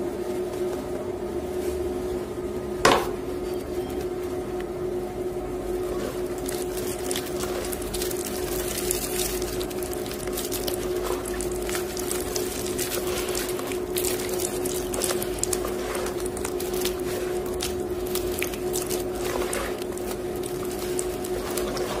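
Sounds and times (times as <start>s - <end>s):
washing machine humming: 0.0s - 22.0s
wet chalk squishing and crackling: 5.9s - 22.0s.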